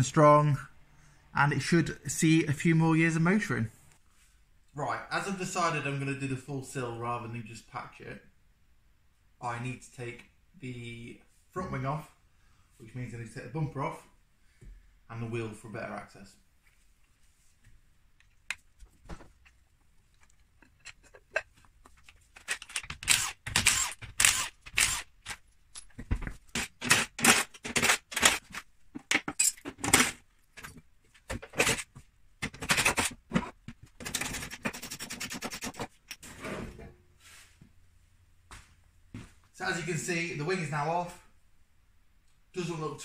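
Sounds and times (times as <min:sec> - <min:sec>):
metal tools clinking and clattering: 0:29.3 - 0:30.8.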